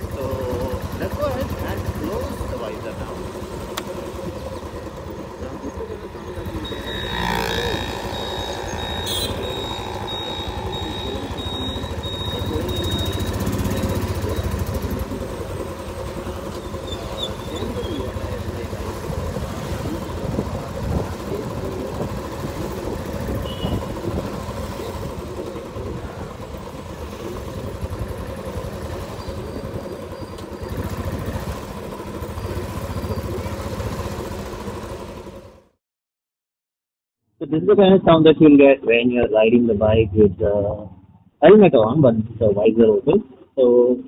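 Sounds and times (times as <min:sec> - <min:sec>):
motorcycle engine: 0:00.0 - 0:35.8
wind noise: 0:19.1 - 0:25.2.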